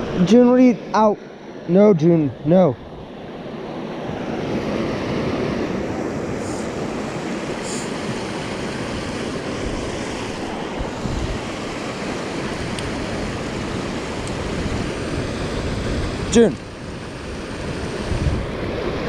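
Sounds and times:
wind buffeting microphone: 0:04.0 - 0:19.0
water rushing over rocks: 0:04.6 - 0:19.0.

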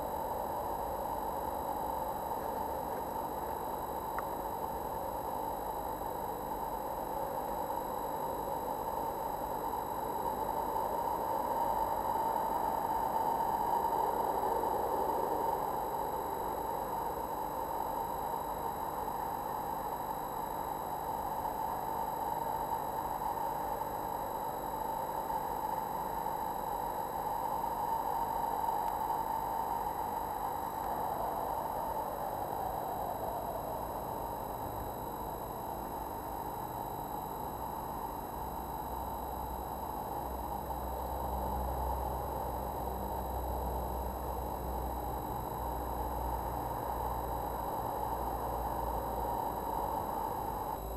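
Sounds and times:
faint high-pitched whines: 0:00.0 - 0:50.9
steady hiss: 0:09.3 - 0:36.8.

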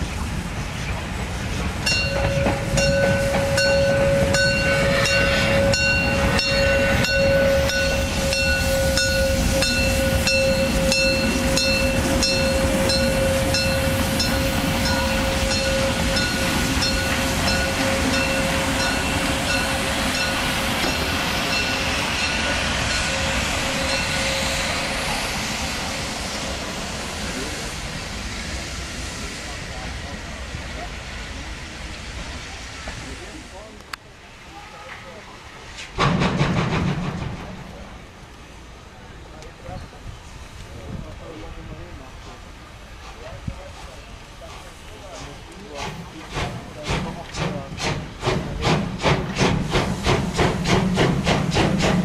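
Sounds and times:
train wheel squeal: 0:01.5 - 0:26.6
wheels clacking over rail joints: 0:34.9 - 0:38.1, 0:42.2 - 0:52.0.

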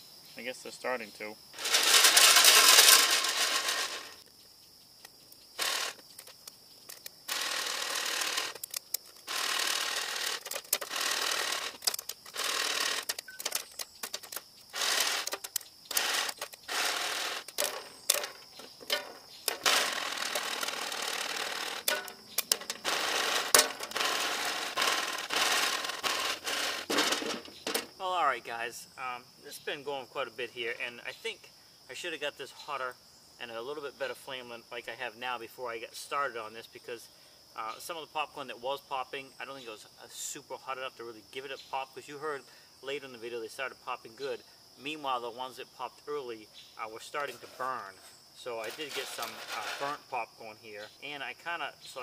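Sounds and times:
popcorn kernels rattling in metal popper: 0:01.6 - 0:04.2, 0:05.6 - 0:06.0, 0:07.3 - 0:08.7, 0:09.3 - 0:27.8, 0:48.7 - 0:49.9
popcorn kernels popping: 0:06.9 - 0:27.8.

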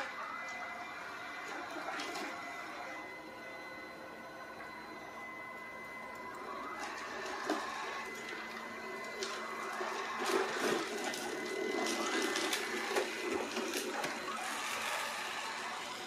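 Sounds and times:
robot vacuum whine and hum: 0:00.0 - 0:16.0.

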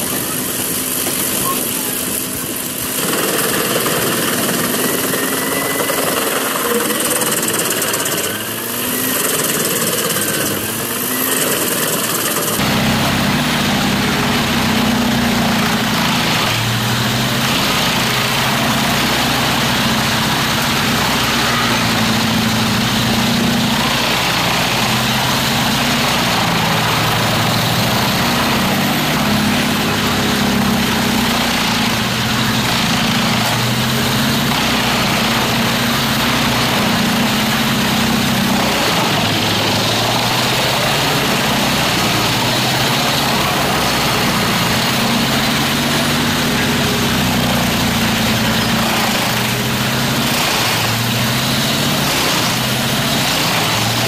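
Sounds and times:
wood chipper chipping logs: 0:00.0 - 0:54.0
wood chipper engine hum: 0:00.0 - 0:54.0.

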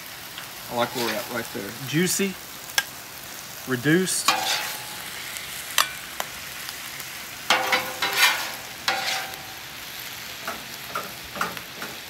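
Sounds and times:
meat sizzling on griddle: 0:00.0 - 0:12.0
metal spatula scraping griddle: 0:00.7 - 0:01.7, 0:04.2 - 0:05.2, 0:07.5 - 0:09.7.

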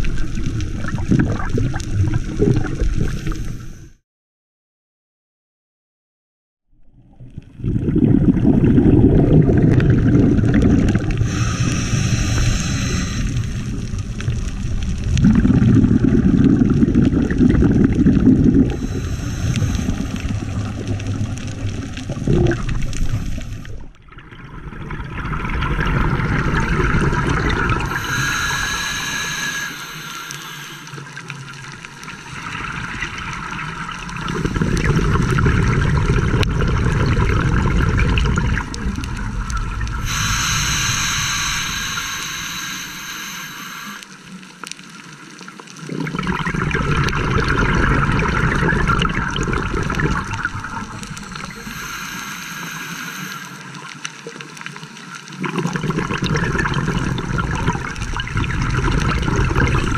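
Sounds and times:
bubbling exhalations underwater: 0:00.0 - 0:03.4, 0:07.4 - 0:31.8, 0:32.4 - 0:43.4, 0:45.8 - 0:52.3, 0:55.3 - 0:59.9
hissing regulator inhalations: 0:11.2 - 0:13.9, 0:18.7 - 0:20.4, 0:22.7 - 0:23.8, 0:27.8 - 0:31.3, 0:40.0 - 0:44.2, 0:51.0 - 0:53.9.

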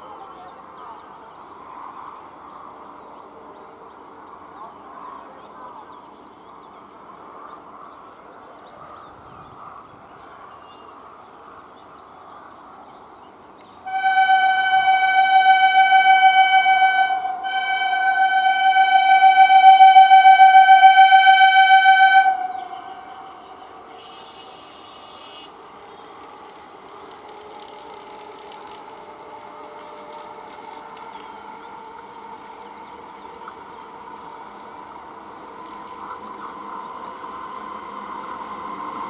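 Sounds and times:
faint outdoor background: 0:00.0 - 0:39.0
train horn blasts: 0:13.8 - 0:24.6.

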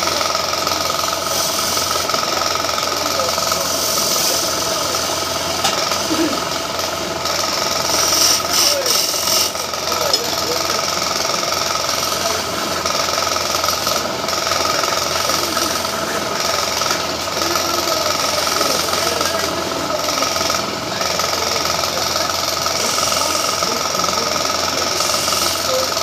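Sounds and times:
lathe motor hum: 0:00.0 - 0:26.0
chisel scraping spinning wood: 0:07.7 - 0:10.4.

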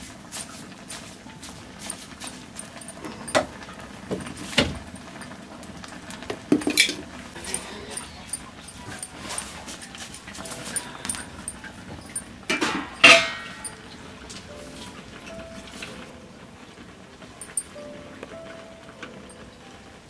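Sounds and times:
knocks and clinks against pan: 0:06.2 - 0:09.5, 0:10.4 - 0:13.8.

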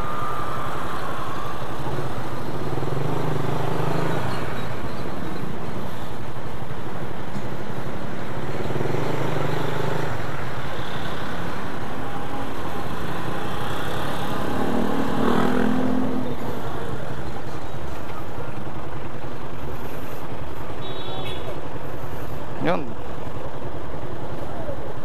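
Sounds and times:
traffic engines: 0:00.0 - 0:25.0.

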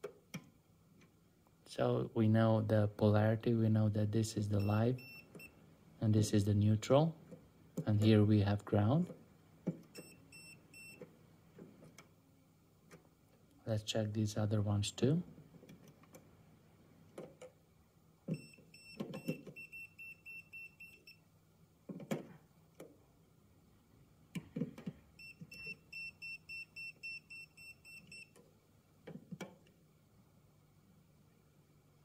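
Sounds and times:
voltage detector beeping: 0:18.3 - 0:21.2, 0:25.2 - 0:28.3.

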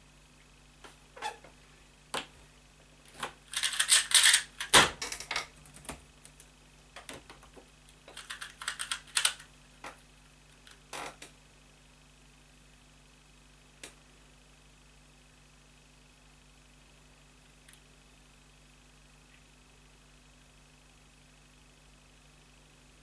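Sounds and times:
plastic puzzle cube clacking: 0:03.5 - 0:04.8, 0:08.1 - 0:09.4.

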